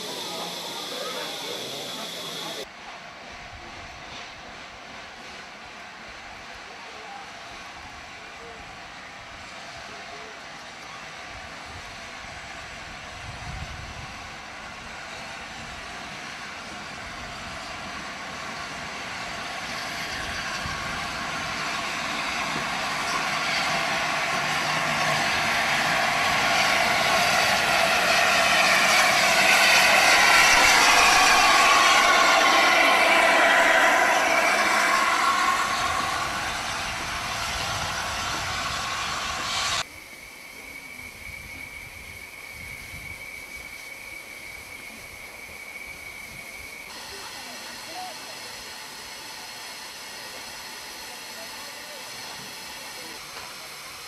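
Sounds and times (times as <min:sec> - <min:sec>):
steam locomotive rushing: 0:00.0 - 0:54.0
thin high steady note: 0:22.2 - 0:45.2.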